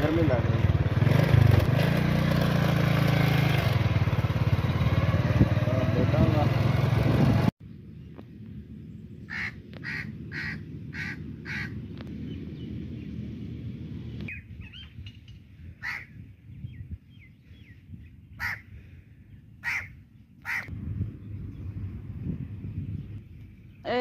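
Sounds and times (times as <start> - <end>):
low steady rumble: 7.6 - 24.0
harsh bird calls: 8.9 - 13.1, 14.0 - 20.7.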